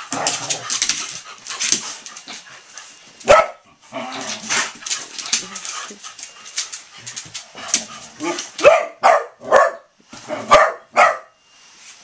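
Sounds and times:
dogs scuffling: 0:00.0 - 0:08.8
dog barking: 0:03.3 - 0:03.6, 0:08.6 - 0:11.3.

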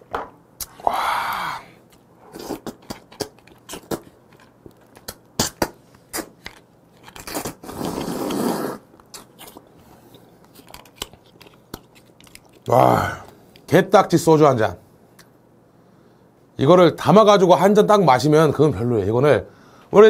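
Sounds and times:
wet lip smacks and chewing: 0:01.9 - 0:07.5, 0:10.4 - 0:12.7.

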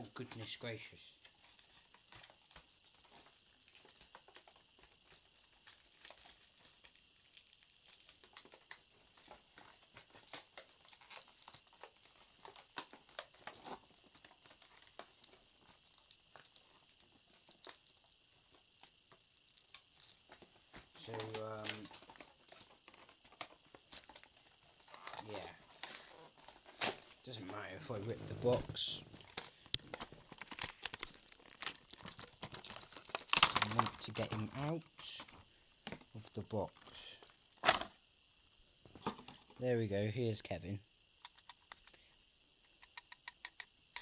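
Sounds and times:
toy packaging clicks and rustles: 0:01.2 - 0:27.6, 0:29.2 - 0:36.1.

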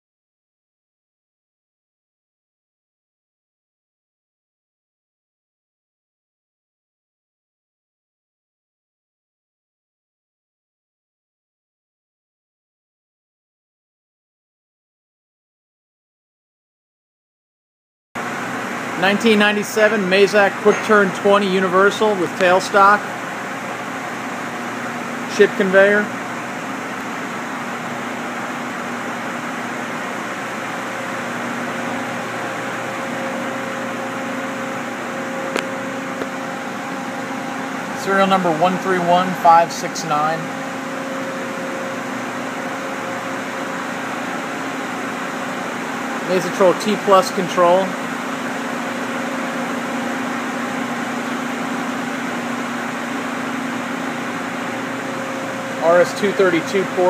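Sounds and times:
mechanical fan hum: 0:18.2 - 0:57.0.

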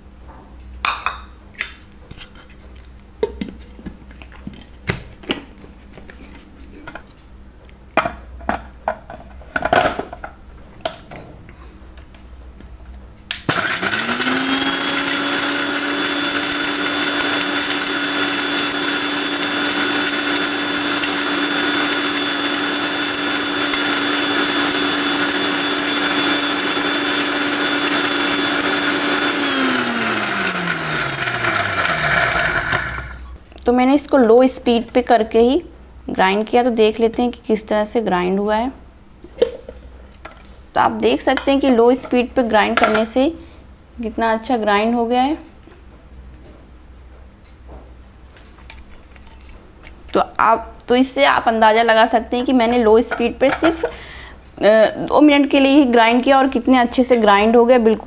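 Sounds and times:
mixer grinder motor whining: 0:13.5 - 0:33.3.

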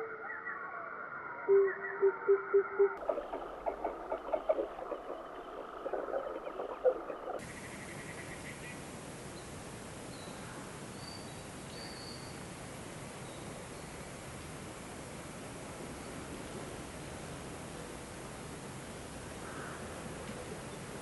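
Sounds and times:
owl calling low notes: 0:00.0 - 0:07.4
faint high chirps: 0:00.0 - 0:07.7
running water rushing: 0:03.0 - 0:10.1.

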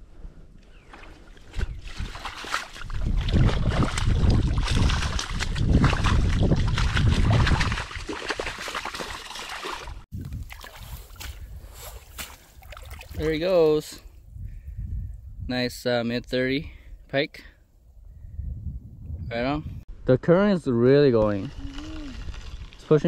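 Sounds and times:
fish splashing in water: 0:01.8 - 0:11.4.

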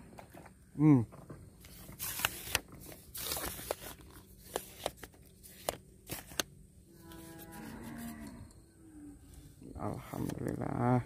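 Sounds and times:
handling clicks and rustles: 0:00.0 - 0:06.5.

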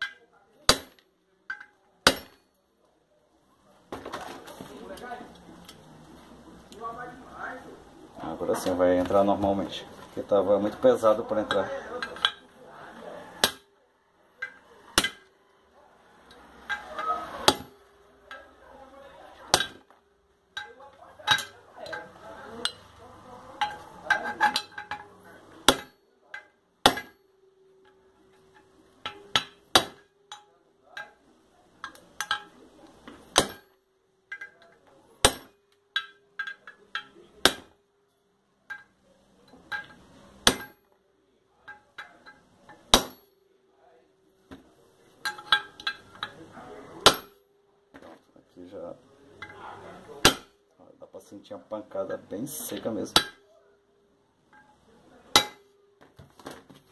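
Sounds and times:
hammer striking metal: 0:00.0 - 0:02.6, 0:13.4 - 0:13.7, 0:14.4 - 0:15.3, 0:16.3 - 0:18.6, 0:19.5 - 0:20.0, 0:23.6 - 0:31.2, 0:31.8 - 0:34.6, 0:35.2 - 0:37.8, 0:39.5 - 0:40.9, 0:41.7 - 0:43.4, 0:47.0 - 0:47.5, 0:50.2 - 0:50.6, 0:53.1 - 0:53.5, 0:54.5 - 0:56.0.

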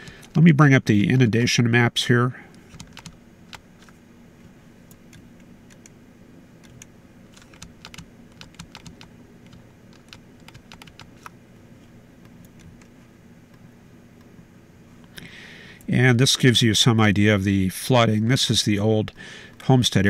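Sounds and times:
faint low hum: 0:00.0 - 0:20.0
computer keyboard keys clicking: 0:02.7 - 0:03.6, 0:06.6 - 0:11.3.

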